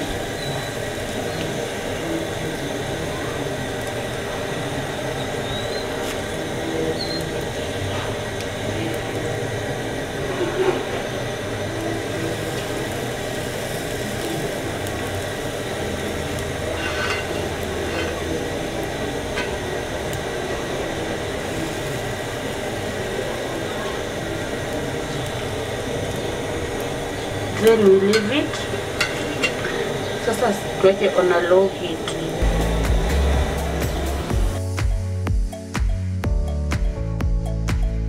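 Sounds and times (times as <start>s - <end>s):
steady hum and hiss: 0.0s - 38.0s
knife scraping and tapping pan: 16.8s - 18.2s, 28.2s - 29.7s.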